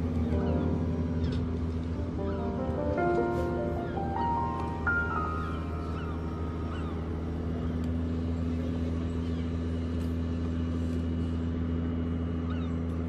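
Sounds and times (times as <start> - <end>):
ship engines droning: 0.0 - 13.0.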